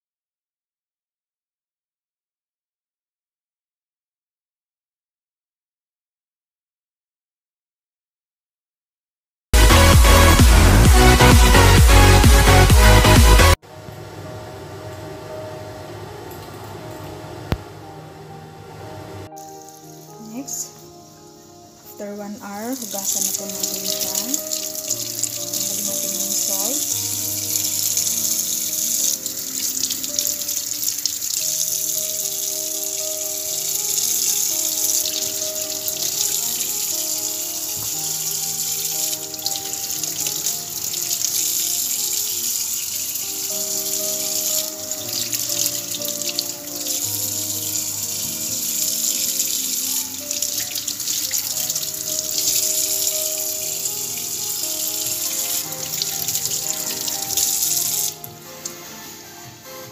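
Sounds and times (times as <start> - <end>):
slow background music: 9.6 - 59.9
tap water running into sink: 22.8 - 58.8.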